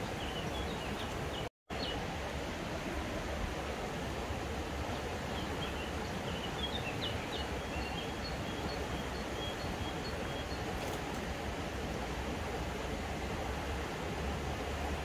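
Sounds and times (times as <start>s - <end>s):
songbird chirping: 0.0s - 2.0s, 4.8s - 11.2s
rushing outdoor background noise: 0.0s - 15.0s.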